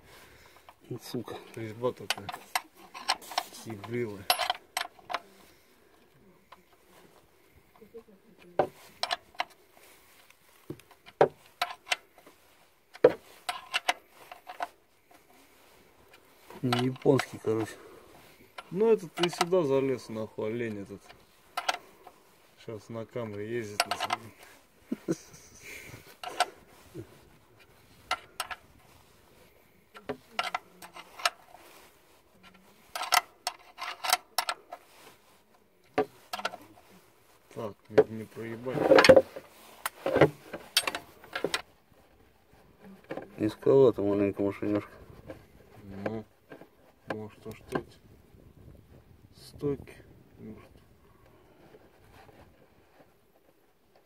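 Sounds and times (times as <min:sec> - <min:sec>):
spanner clinking on bolt: 0:04.2 - 0:05.2.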